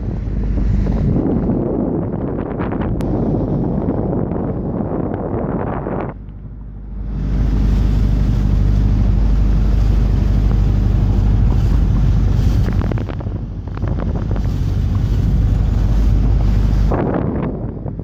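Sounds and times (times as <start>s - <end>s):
boat engine humming: 0.0s - 18.0s
water rushing past hull: 0.0s - 18.0s
wind rumbling on microphone: 0.0s - 18.0s.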